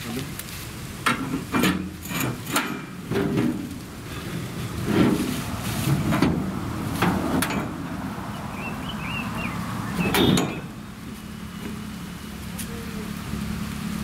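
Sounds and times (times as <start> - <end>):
wheelbarrows knocking on metal rail: 1.0 - 3.7, 5.9 - 7.8, 10.0 - 10.7.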